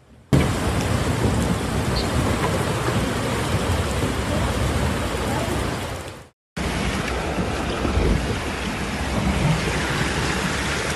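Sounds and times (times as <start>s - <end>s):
heavy rain: 0.3s - 10.9s
floodwater rushing: 0.4s - 10.9s.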